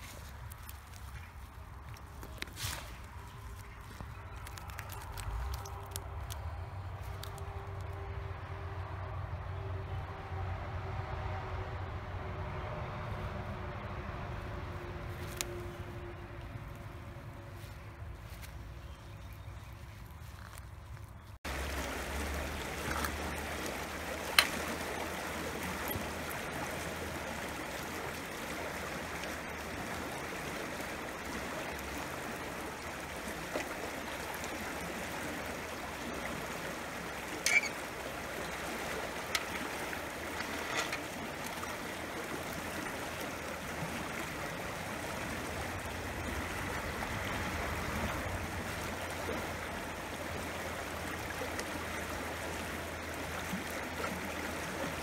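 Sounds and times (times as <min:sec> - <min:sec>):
stream rushing over riffles: 0:21.5 - 0:55.0.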